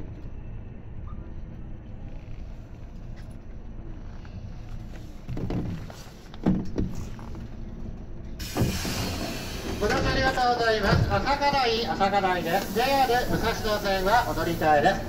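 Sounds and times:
train rumble: 0:00.0 - 0:15.0
heavy train clunks: 0:05.2 - 0:15.0
train doors hissing open: 0:08.4 - 0:15.0.

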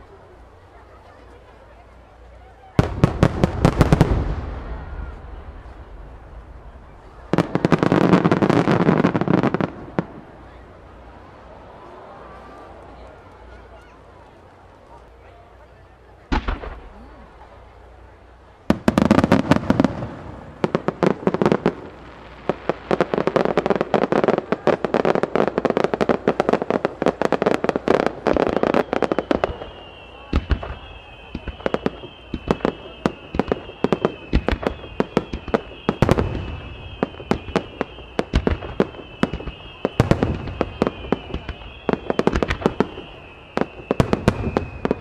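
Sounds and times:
fireworks bangs and crackling: 0:00.0 - 0:45.0
high wavering firework whistle: 0:27.2 - 0:45.0.

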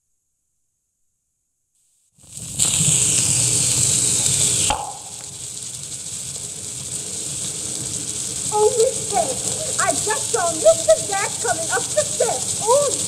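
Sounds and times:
phonograph hiss and crackle: 0:02.2 - 0:13.0
faint steady hum: 0:03.7 - 0:13.0.

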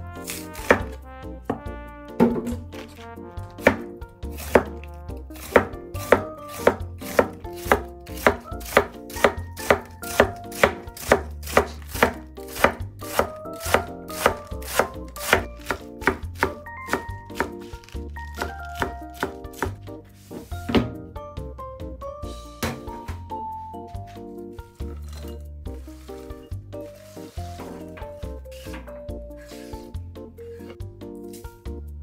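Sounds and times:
knife slicing cabbage on board: 0:00.2 - 0:01.0, 0:03.6 - 0:20.5.

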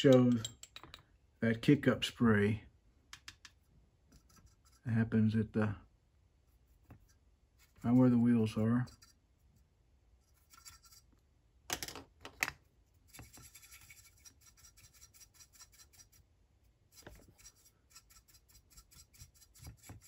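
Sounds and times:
stiff brush scratching plastic: 0:16.8 - 0:20.0.

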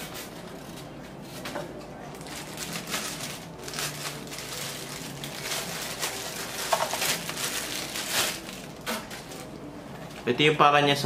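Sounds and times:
plastic bag crinkling: 0:02.0 - 0:09.7.

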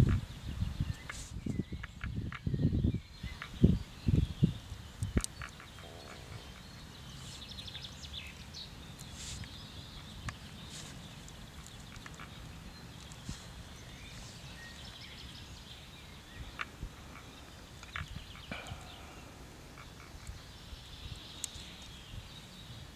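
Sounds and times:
wires being twisted by hand: 0:00.0 - 0:02.5, 0:04.6 - 0:14.9
birds chirping in trills: 0:00.0 - 0:22.9.

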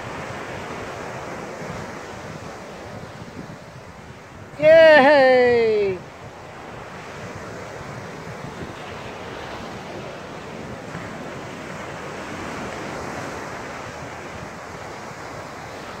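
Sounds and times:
ocean surf washing on beach: 0:00.0 - 0:16.0
wind buffeting microphone: 0:00.0 - 0:16.0.

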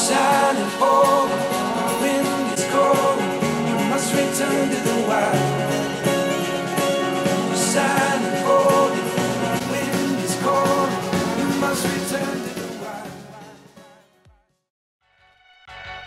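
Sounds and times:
song with guitar and singing: 0:00.0 - 0:14.1.

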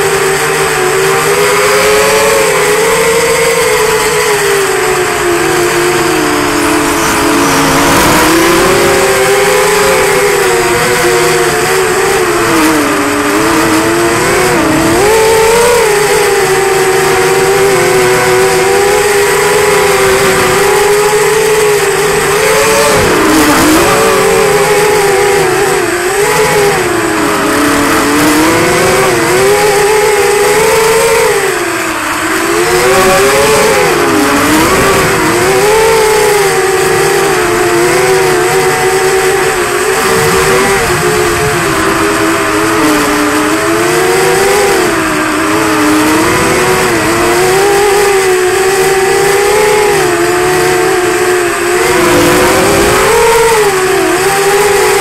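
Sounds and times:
quadcopter motors whining: 0:00.0 - 0:55.0.

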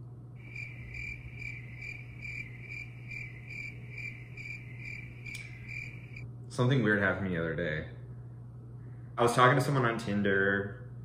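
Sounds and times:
cricket chirping: 0:00.4 - 0:06.2.

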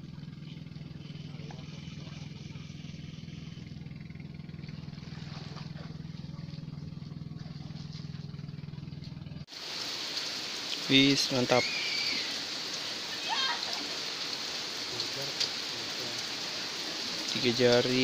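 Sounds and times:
low mechanical drone: 0:00.0 - 0:10.9.

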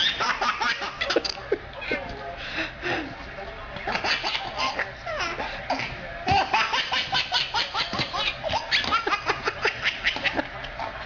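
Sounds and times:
baby giggling: 0:03.9 - 0:05.5, 0:06.3 - 0:10.5.

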